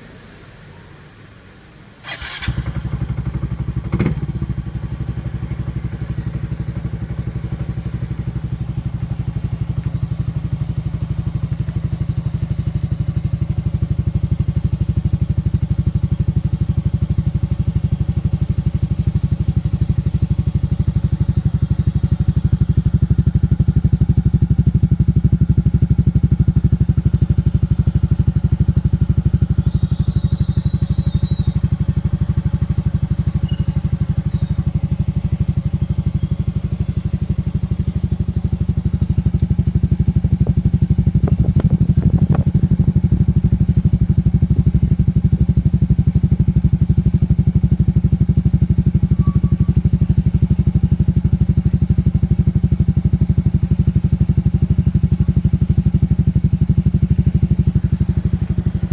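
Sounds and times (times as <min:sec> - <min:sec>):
scooter engine starting and idling: 0:02.0 - 0:58.9
exhaust pop: 0:40.4 - 0:43.3.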